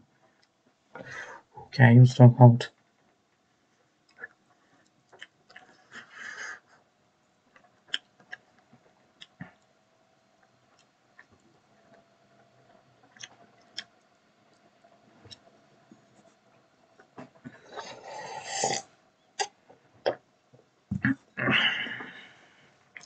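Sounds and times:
food crunching: 4.0 - 5.9, 13.0 - 14.0.

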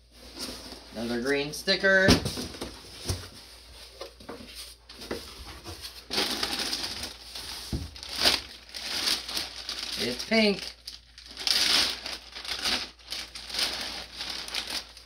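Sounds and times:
packaging rustling and crinkling: 4.9 - 15.0.

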